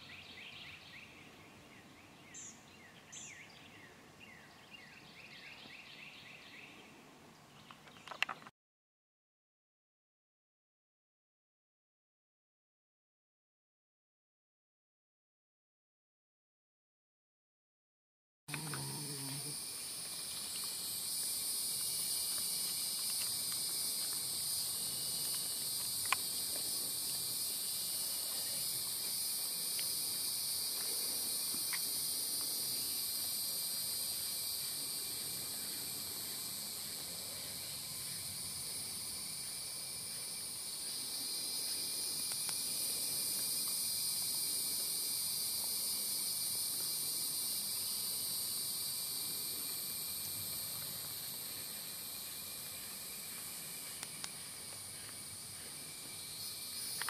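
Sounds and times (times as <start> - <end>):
sharp click: 7.7 - 8.5
insects trilling: 18.5 - 57.0.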